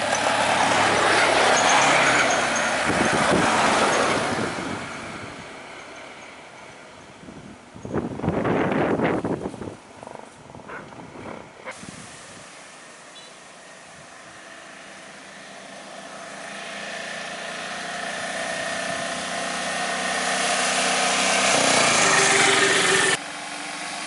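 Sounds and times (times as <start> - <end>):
bus driving past: 0.0 - 8.0, 8.7 - 24.0
auto-rickshaw driving past: 0.0 - 11.6, 12.8 - 24.0.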